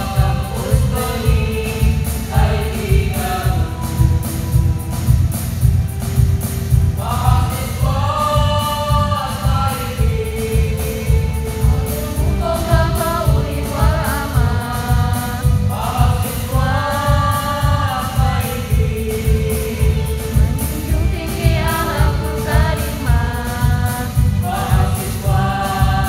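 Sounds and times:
mixed choir singing a march: 0.0s - 5.7s, 7.0s - 26.0s
accompaniment with low beat: 0.0s - 26.0s.

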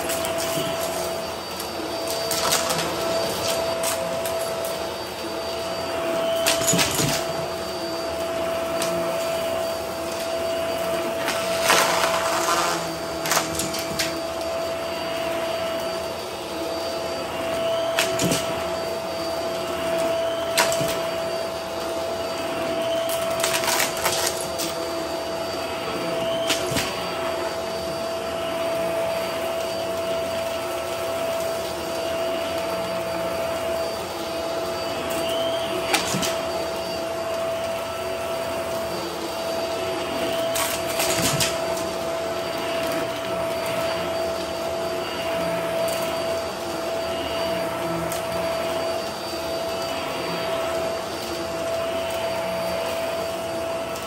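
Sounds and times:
vacuum cleaner running: 0.0s - 54.0s
debris crunching in vacuum: 11.2s - 14.2s.

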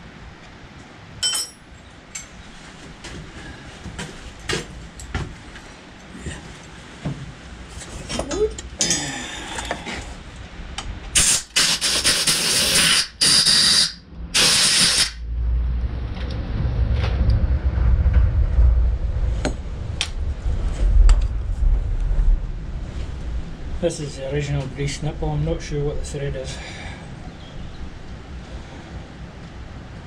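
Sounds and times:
low steady rumble: 0.0s - 11.2s, 14.0s - 14.4s, 15.2s - 30.0s
compressed air hissing: 11.2s - 15.2s.

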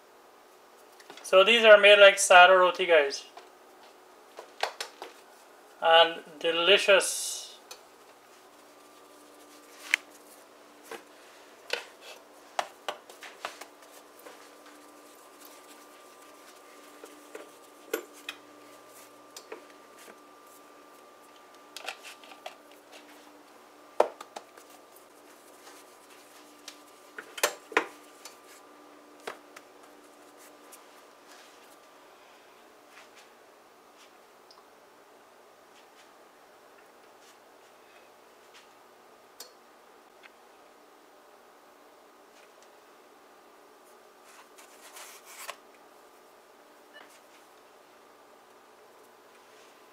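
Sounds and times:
faint steady hum: 0.0s - 49.9s
hands patting dough: 11.7s - 21.0s, 24.0s - 28.6s.

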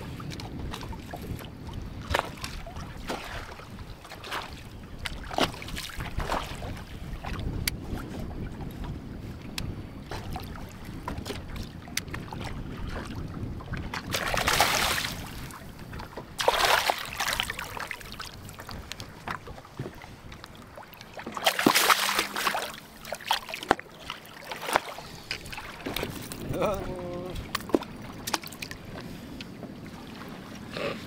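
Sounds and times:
wind and water rumble: 0.0s - 31.0s
fish splashing at water surface: 14.1s - 15.4s, 16.4s - 18.2s, 21.3s - 26.0s.

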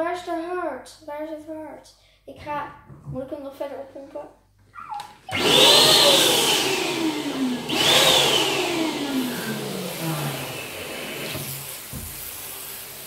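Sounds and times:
electric balloon pump whirring: 5.2s - 13.0s.

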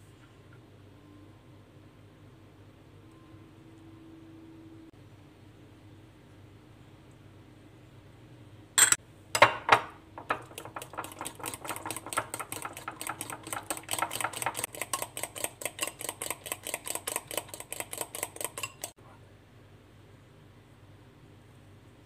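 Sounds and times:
fork clinking against bowl: 10.3s - 19.0s.

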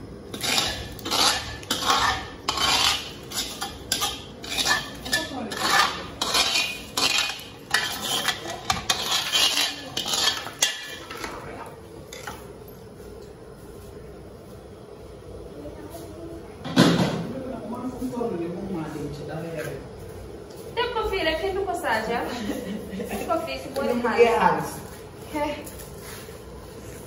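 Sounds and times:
utensil scraping a cooking pot: 0.2s - 12.4s.

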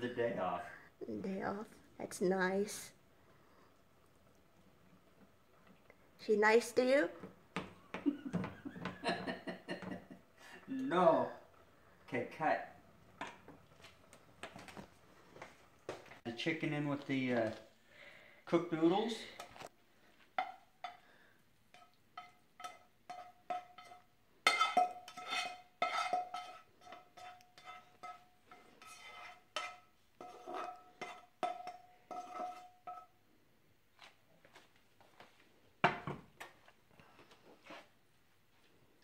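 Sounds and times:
spatula tapping mixing bowls: 20.4s - 33.2s.

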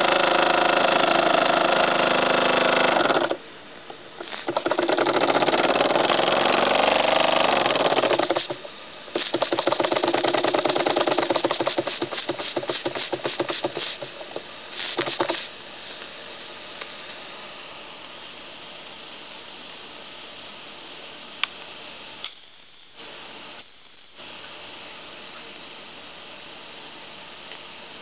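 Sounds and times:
model steam engine chuffing: 9.2s - 14.2s.

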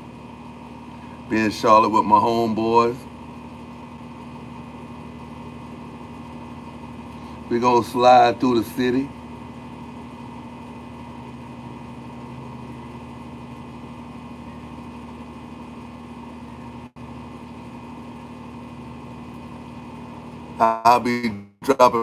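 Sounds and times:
motor humming: 0.0s - 21.0s.

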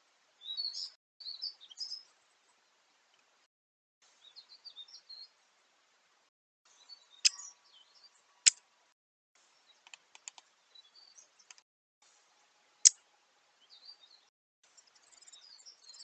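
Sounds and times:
small birds chirping: 0.0s - 3.3s, 4.1s - 5.4s, 6.7s - 8.6s, 9.4s - 11.6s, 12.6s - 16.0s.

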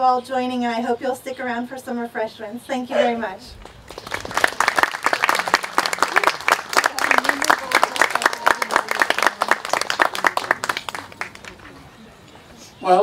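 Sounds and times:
audience applauding: 3.8s - 11.8s.

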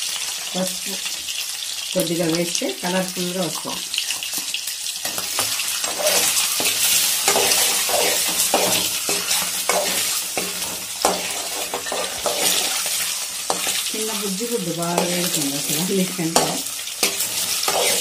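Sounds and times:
eggs sizzling in hot oil: 0.0s - 18.0s
steel spoon scraping a pan: 5.0s - 18.0s.

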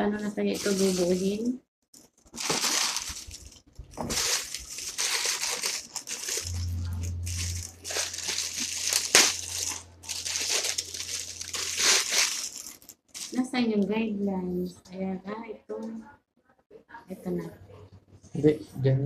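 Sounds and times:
plastic packaging crinkling: 0.5s - 13.6s
steady low hum: 6.1s - 12.2s.

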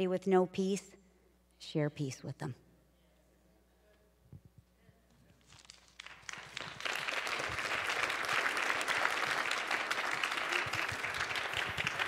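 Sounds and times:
congregation applauding: 5.6s - 12.0s.

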